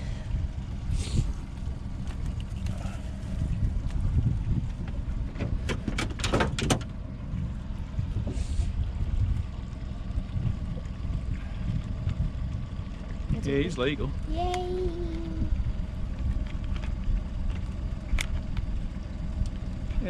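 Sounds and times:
wind rumble on microphone: 0.0s - 20.0s
sharp clicks and rattles: 4.8s - 7.0s.

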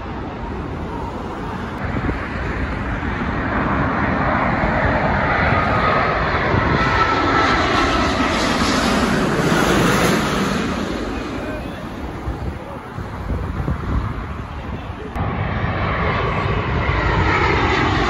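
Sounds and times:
jet airliner engines passing overhead: 0.0s - 18.0s.

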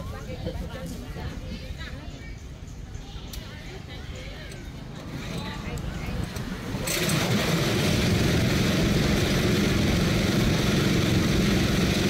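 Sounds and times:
small engine droning: 6.7s - 12.0s.

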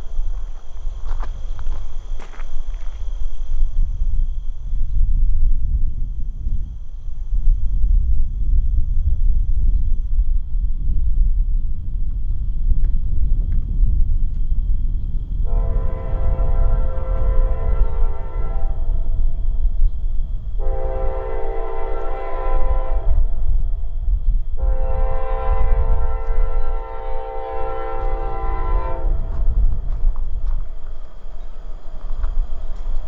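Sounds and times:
low rumble of train: 0.0s - 33.0s
locomotive air horn blasts: 15.5s - 19.1s, 20.6s - 23.3s, 24.6s - 29.4s.

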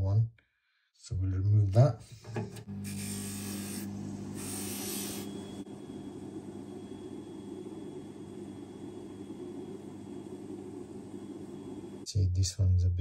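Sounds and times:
polishing motor humming: 2.5s - 12.0s.

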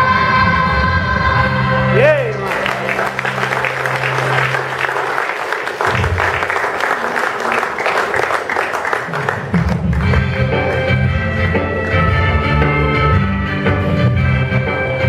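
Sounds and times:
music: 0.0s - 6.7s, 9.0s - 15.0s
audience applauding: 2.0s - 11.0s.

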